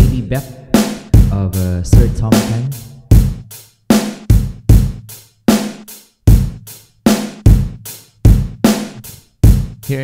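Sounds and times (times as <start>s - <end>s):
drum kit playing slow beat: 0.0s - 10.0s
kick drum: 1.2s - 1.4s, 3.1s - 3.5s, 4.3s - 5.1s, 6.3s - 6.7s, 7.4s - 8.7s, 9.4s - 9.8s.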